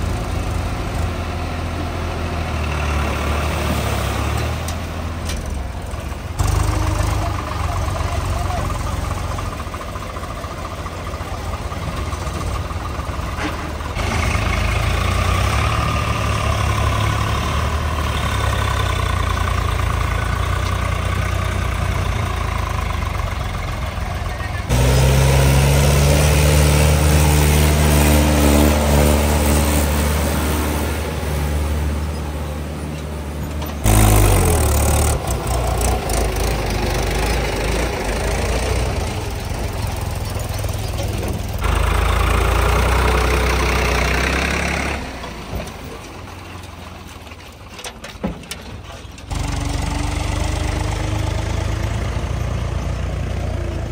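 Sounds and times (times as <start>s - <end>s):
heavy diesel engines running: 0.0s - 53.9s.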